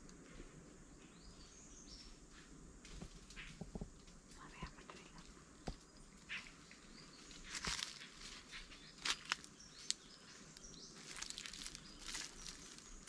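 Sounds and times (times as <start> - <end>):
footsteps on a forest trail: 4.4 - 13.0.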